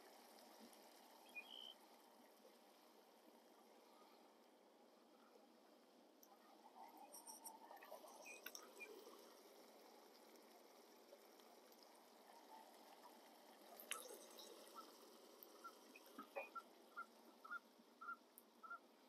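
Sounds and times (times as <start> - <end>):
water boiling in a pot: 0.0 - 19.0
small clicks: 7.0 - 9.2, 13.6 - 16.6.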